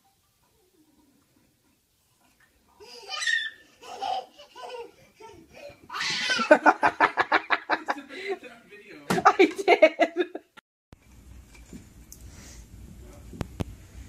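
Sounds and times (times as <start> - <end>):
person laughing: 5.6 - 8.5, 9.2 - 10.5.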